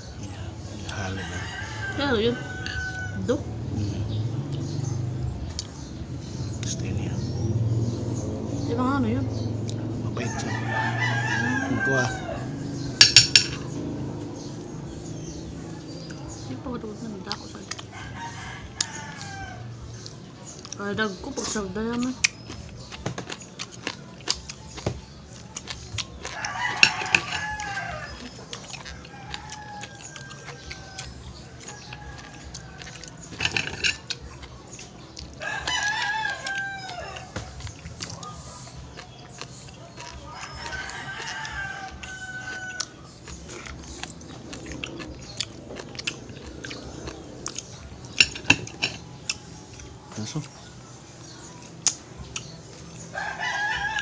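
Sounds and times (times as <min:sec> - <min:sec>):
rooster crowing: 0:00.3 - 0:05.1, 0:10.0 - 0:13.9, 0:17.8 - 0:19.9, 0:26.2 - 0:34.0, 0:35.4 - 0:38.6, 0:40.0 - 0:49.5, 0:53.1 - 0:54.0
clam shells and fork clicking on plate: 0:13.0 - 0:13.7, 0:33.3 - 0:34.1.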